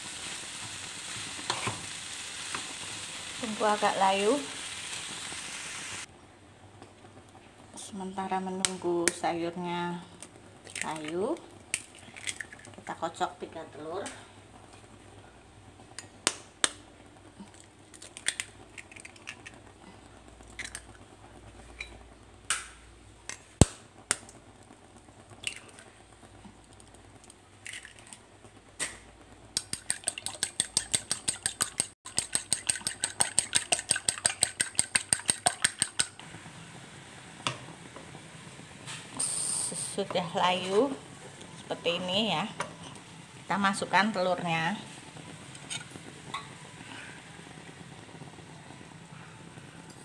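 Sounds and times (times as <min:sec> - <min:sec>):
eggs cracking on glass bowl: 0:11.7 - 0:12.8, 0:17.9 - 0:19.6, 0:29.6 - 0:36.2.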